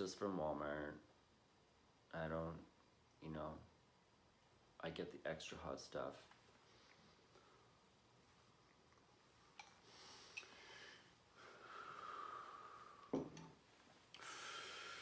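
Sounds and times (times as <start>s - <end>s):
man breathing hard: 9.8s - 13.1s, 14.2s - 15.0s.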